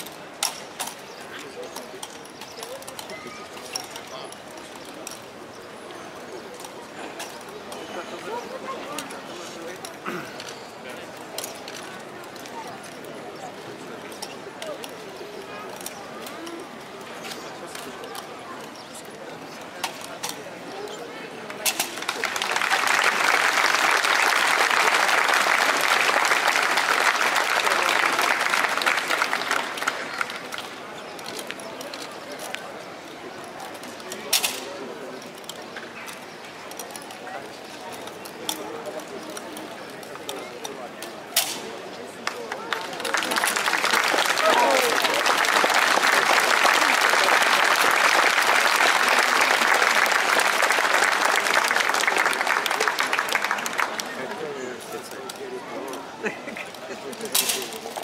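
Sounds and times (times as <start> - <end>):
crowd applauding: 22.0 - 30.5, 42.2 - 54.7.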